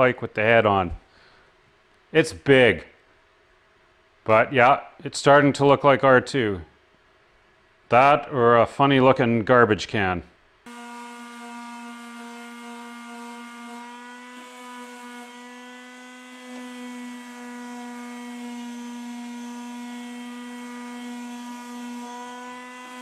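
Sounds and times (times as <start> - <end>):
electric sander humming: 10.7 - 23.0.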